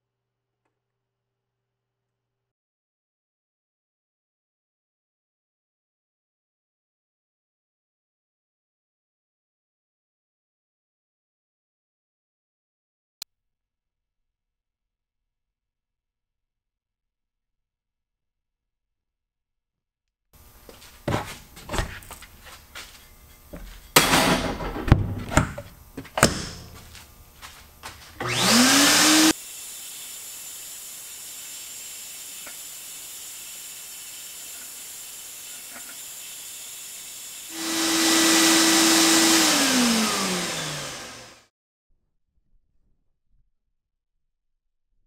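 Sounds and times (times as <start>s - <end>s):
motor whining: 20.4s - 41.4s
blast nozzle hissing: 26.2s - 39.5s.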